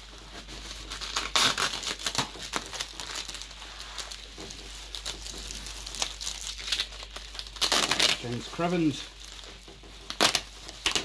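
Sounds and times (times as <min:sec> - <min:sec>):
bubble wrap crinkling and crackling: 0:00.0 - 0:11.0.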